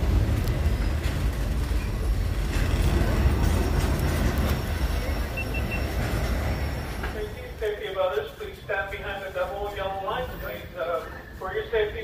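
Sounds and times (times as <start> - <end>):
sharp clicks of train wheels: 0.0 - 7.3
freight train rumbling past: 0.0 - 12.0.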